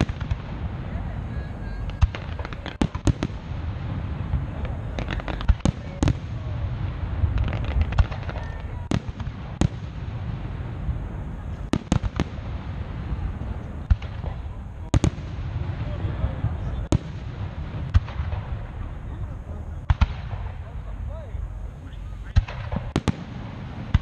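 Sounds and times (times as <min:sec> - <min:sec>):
fireworks bursting with sharp bangs: 0:00.0 - 0:24.0
steady low rumble: 0:00.0 - 0:24.0.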